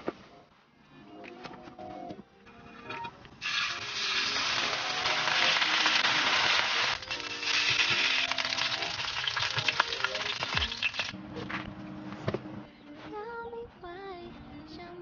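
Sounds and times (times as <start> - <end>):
soft background music: 0.0 - 15.0
sausages sizzling in oil: 3.4 - 11.2.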